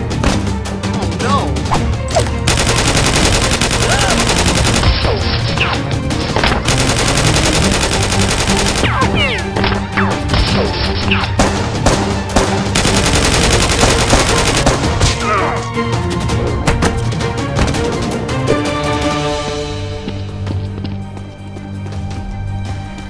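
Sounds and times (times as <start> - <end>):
action music with steady beat: 0.0 - 23.0
rapid gunfire: 2.5 - 5.7, 6.3 - 10.3, 11.3 - 15.1.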